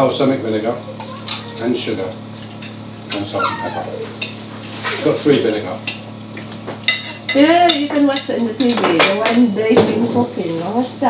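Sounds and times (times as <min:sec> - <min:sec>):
cutlery clinking on plates: 0:02.3 - 0:03.3, 0:04.1 - 0:09.4.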